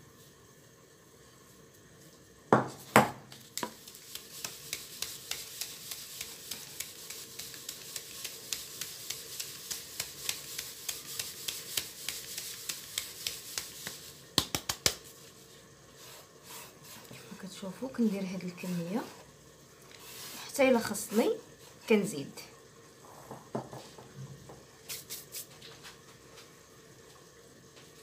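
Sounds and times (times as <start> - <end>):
hiss of falling flour: 3.4 - 19.2, 20.0 - 21.9, 24.8 - 25.8.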